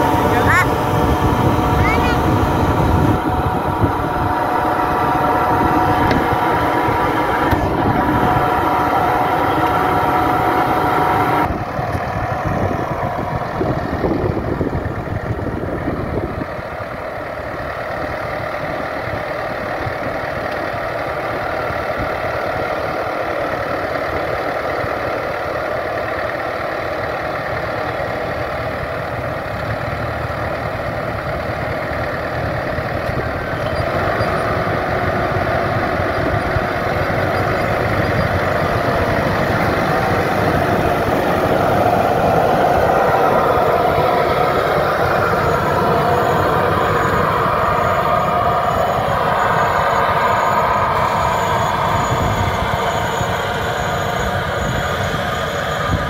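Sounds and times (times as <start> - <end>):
vacuum fan whine: 0.0 - 16.6, 32.6 - 56.0
tractor engine running: 0.0 - 56.0.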